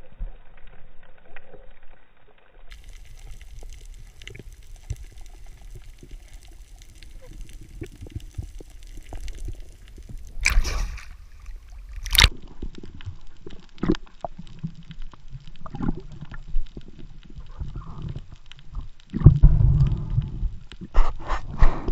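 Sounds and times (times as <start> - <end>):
underwater rushing burst: 2.7 - 12.3.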